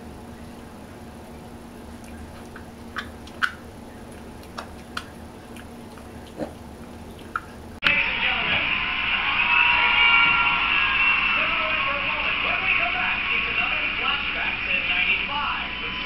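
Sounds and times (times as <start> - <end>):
faint steady hum: 0.0 - 10.7
pig grunting and snuffling: 4.1 - 7.6.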